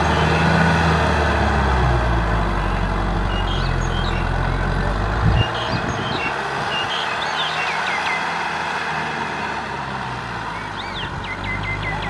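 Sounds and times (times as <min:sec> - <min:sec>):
tractor diesel engine running: 0:00.0 - 0:12.0
high chirps: 0:02.7 - 0:04.6, 0:05.3 - 0:08.4, 0:10.6 - 0:12.0.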